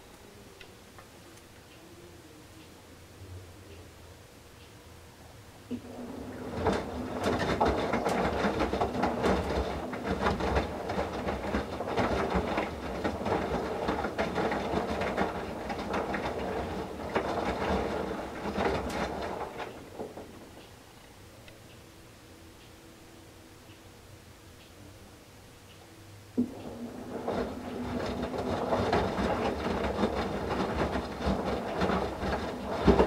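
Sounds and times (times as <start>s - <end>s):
faint motor hum: 0.0s - 33.0s
towels slapping in drum: 5.7s - 20.6s, 26.4s - 33.0s
water sloshing in washer drum: 5.7s - 20.6s, 26.4s - 33.0s.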